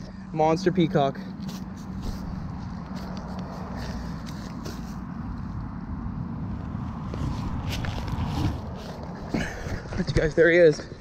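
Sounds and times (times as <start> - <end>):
steady low rumble: 0.0 - 9.9
footsteps on grass: 1.3 - 5.4, 6.7 - 9.5.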